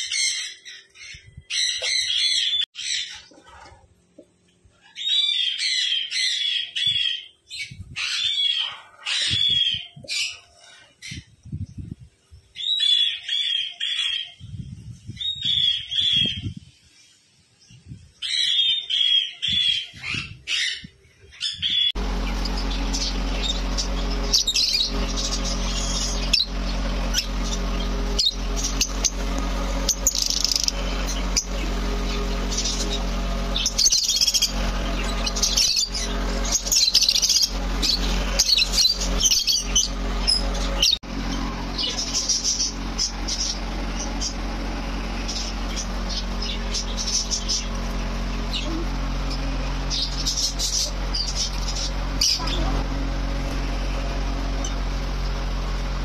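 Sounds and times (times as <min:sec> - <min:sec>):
flock of lovebirds chirping: 0:18.2 - 0:44.6, 0:45.2 - 0:53.5
steady hum: 0:21.9 - 0:56.0.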